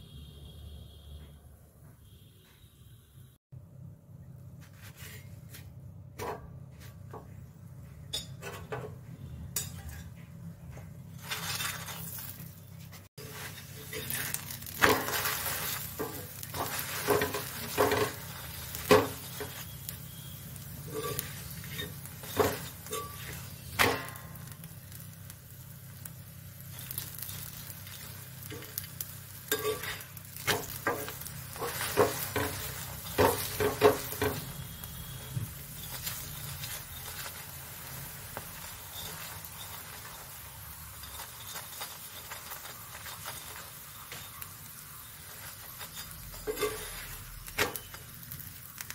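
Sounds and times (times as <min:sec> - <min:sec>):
flatbread sizzling in oil: 0:09.6 - 0:48.9
metal spatula scraping a pan: 0:11.1 - 0:24.5, 0:26.7 - 0:48.5.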